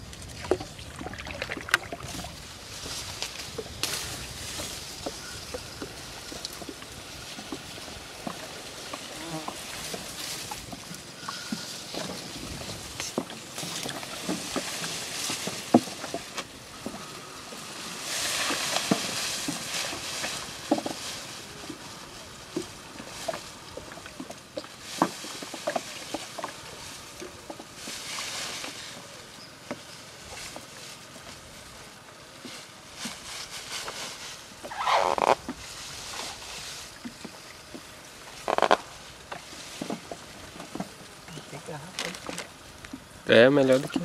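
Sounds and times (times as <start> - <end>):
water splashing: 0.0 - 28.7.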